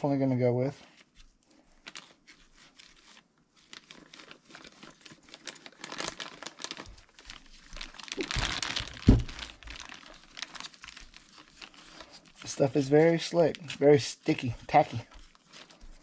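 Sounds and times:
plastic packaging crinkling: 0:01.7 - 0:16.0
dull knock: 0:09.1 - 0:09.3.

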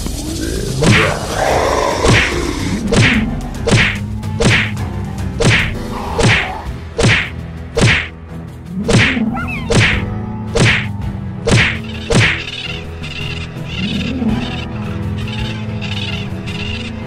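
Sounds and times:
cartoon whack with falling swish: 0:02.9 - 0:04.7, 0:05.4 - 0:08.1, 0:08.9 - 0:10.0, 0:10.6 - 0:10.9, 0:11.5 - 0:12.4.

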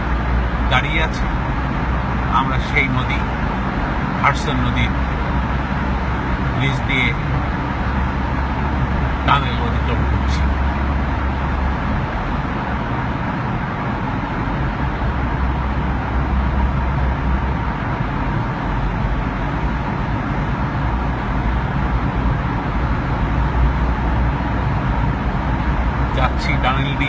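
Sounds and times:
deep road rumble: 0:00.0 - 0:27.0
tyre and traffic noise: 0:00.0 - 0:27.0.

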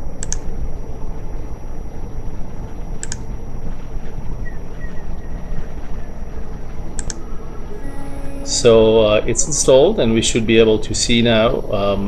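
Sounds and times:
low background rumble: 0:00.0 - 0:12.0
computer mouse click: 0:00.2 - 0:00.5, 0:03.0 - 0:03.2, 0:07.0 - 0:07.2.

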